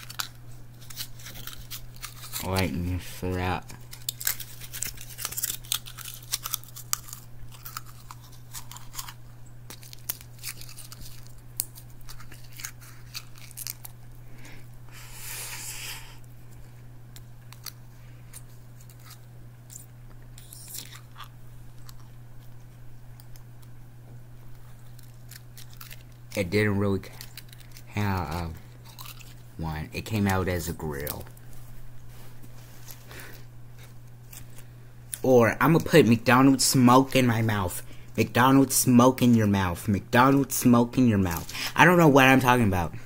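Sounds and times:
blister pack crinkling: 0.0s - 14.2s, 24.4s - 31.6s
steady low hum: 0.0s - 43.0s.

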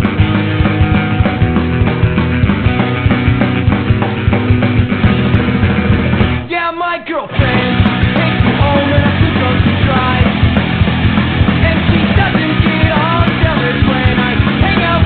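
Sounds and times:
punk rock band: 0.0s - 15.0s
person singing: 6.4s - 10.6s, 11.5s - 15.0s.

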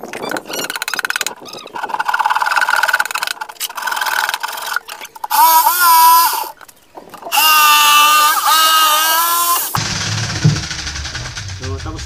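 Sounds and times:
handsaw cutting plywood: 7.3s - 9.8s.

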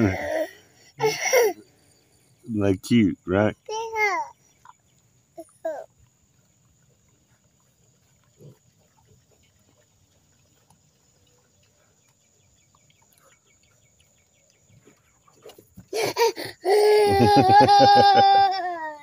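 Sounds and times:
pigs grunting: 6.7s - 12.0s.

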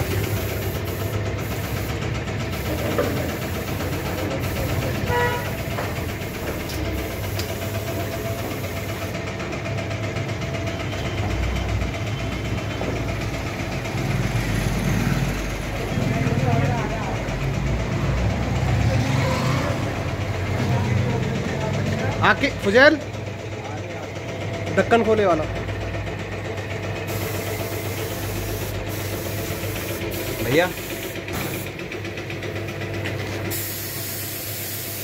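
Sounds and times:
machinery running with low hum: 0.0s - 18.4s, 25.4s - 33.6s.

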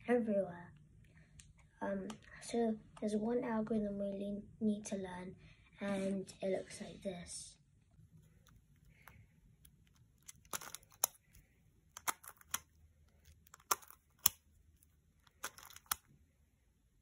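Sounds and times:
plastic puzzle pieces clicking: 8.4s - 16.1s.

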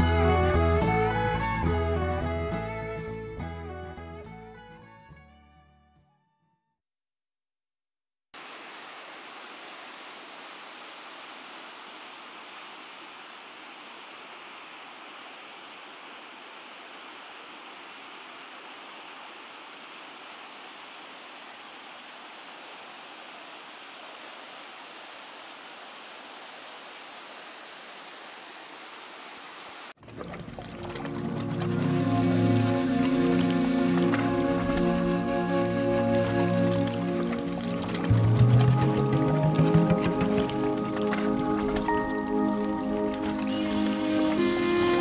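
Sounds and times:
river rushing over rocks: 31.7s - 45.0s.

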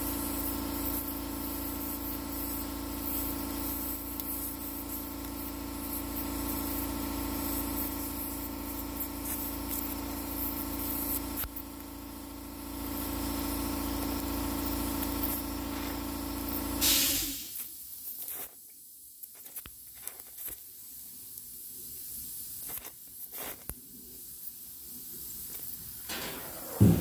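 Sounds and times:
welding torch flame hissing: 0.0s - 27.0s
steady hum: 26.1s - 27.0s.

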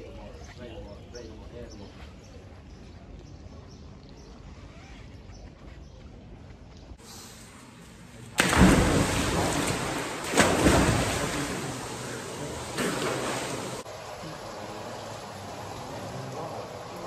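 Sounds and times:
loud splash into pool: 8.4s - 13.9s
heavy splashing churning water: 8.4s - 17.0s.

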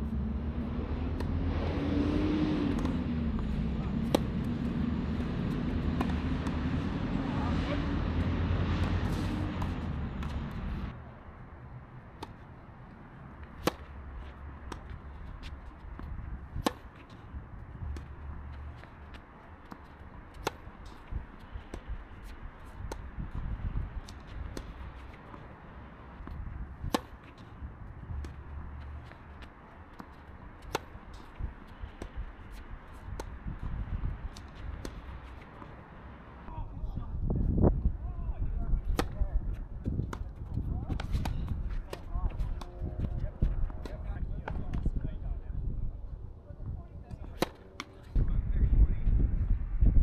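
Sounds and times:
tennis racquets hitting ball: 0.7s - 10.9s, 12.0s - 36.6s, 38.8s - 44.9s, 47.1s - 48.2s
ball bouncing: 2.6s - 7.0s, 13.4s - 25.5s, 26.2s - 33.7s.

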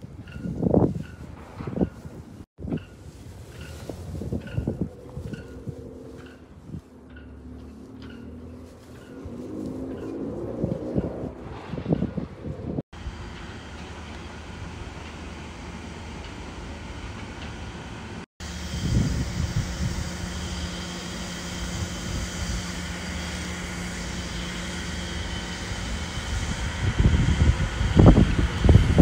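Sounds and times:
wind buffeting microphone: 0.0s - 13.2s, 18.4s - 23.0s, 23.7s - 29.0s
outdoor machine hum: 0.0s - 29.0s.

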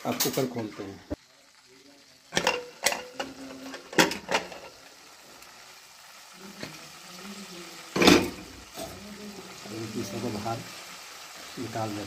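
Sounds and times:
pressure cooker lid clanking: 2.4s - 4.7s.

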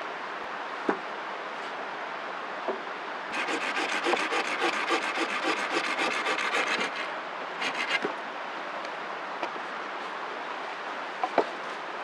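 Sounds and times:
blade rasping on wooden stick: 3.3s - 8.1s.

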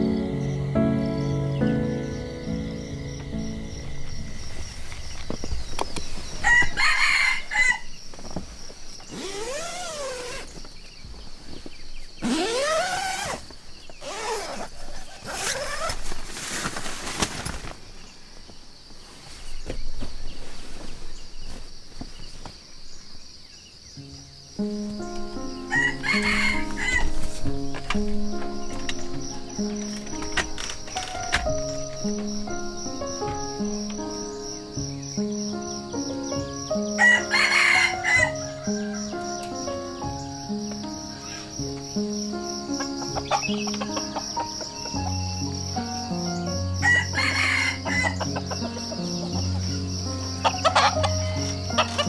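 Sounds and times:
soft music: 0.0s - 10.6s, 24.0s - 52.0s
rooster crowing: 6.4s - 8.0s, 25.7s - 27.1s, 37.0s - 39.4s, 46.8s - 48.2s.

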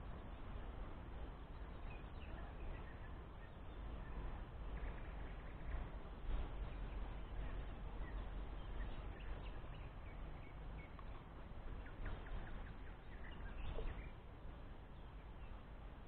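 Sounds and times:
wind rumbling on microphone: 0.0s - 16.0s
bird chirps and calls: 6.7s - 14.2s.

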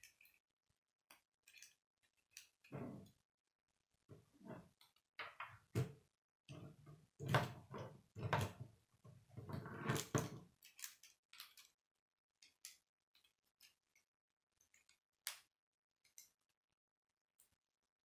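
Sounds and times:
plastic pieces clacking and rattling: 1.4s - 2.7s, 9.9s - 11.8s.

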